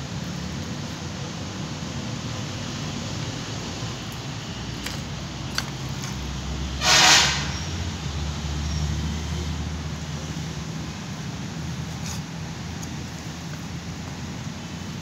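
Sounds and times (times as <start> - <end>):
low traffic rumble: 0.0 - 15.0
vehicle horn toot: 6.8 - 7.6.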